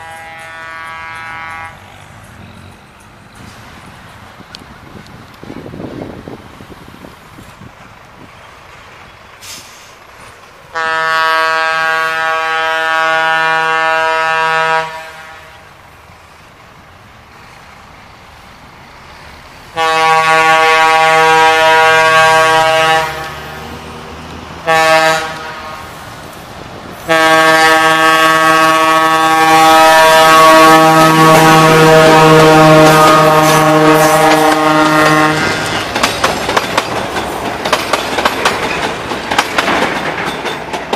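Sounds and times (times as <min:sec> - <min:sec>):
locomotive air horn blasts: 0:00.0 - 0:02.0, 0:10.7 - 0:15.8, 0:19.7 - 0:23.7, 0:24.6 - 0:26.1, 0:27.0 - 0:35.7.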